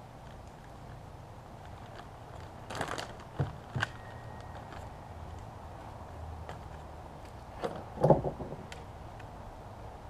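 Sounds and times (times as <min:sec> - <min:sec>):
plastic bag crinkling: 0:00.2 - 0:05.4.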